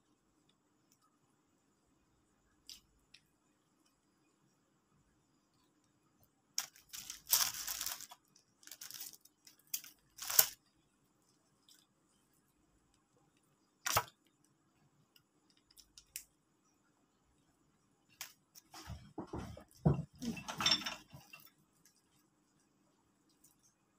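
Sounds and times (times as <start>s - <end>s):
plastic sachet tearing and crinkling: 6.6s - 10.6s.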